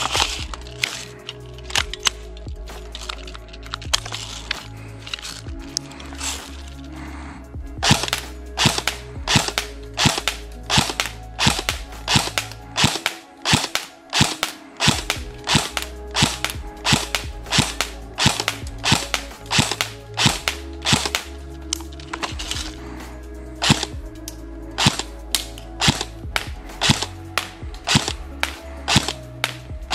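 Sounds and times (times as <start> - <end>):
airsoft gun single shots: 7.9 - 21.2, 25.8 - 27.1, 27.9 - 29.2.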